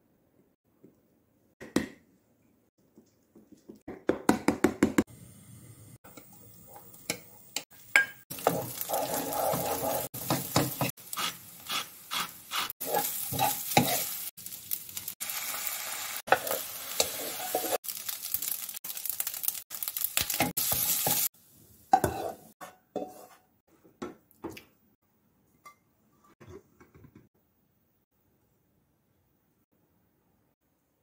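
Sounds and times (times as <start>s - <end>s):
rice sizzling in wok: 5.1s - 22.6s
spatula scraping wok: 8.3s - 14.3s, 15.6s - 17.8s, 21.9s - 23.5s.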